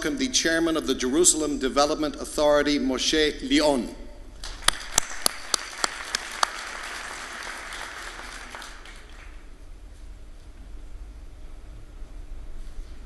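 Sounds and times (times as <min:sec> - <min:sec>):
sharp separate claps: 0:04.4 - 0:09.4
audience applauding: 0:04.4 - 0:09.5.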